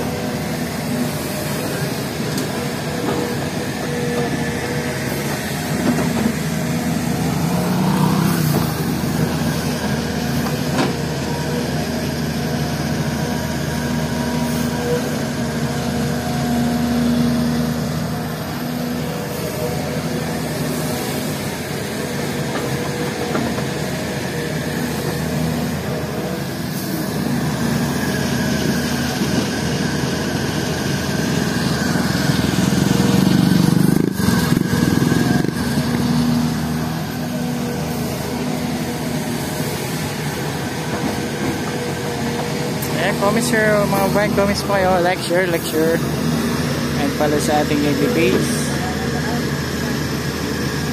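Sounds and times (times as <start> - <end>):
excavator diesel engine running: 0.0 - 50.9
motorcycle passing: 7.2 - 9.1, 31.6 - 37.7.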